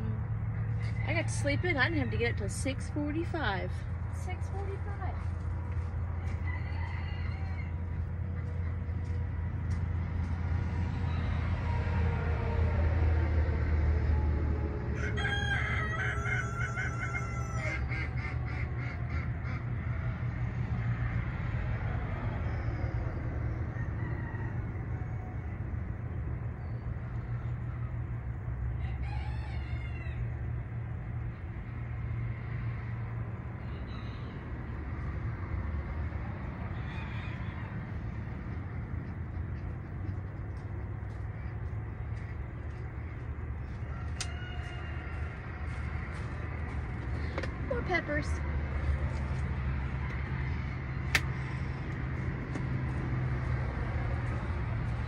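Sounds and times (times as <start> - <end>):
rooster crowing: 0.7 - 2.5, 6.1 - 9.2, 10.9 - 20.4, 21.9 - 25.6, 28.7 - 30.6, 33.6 - 35.0, 36.6 - 38.3, 43.6 - 46.8
steady low rumble: 7.5 - 15.0, 37.6 - 55.0.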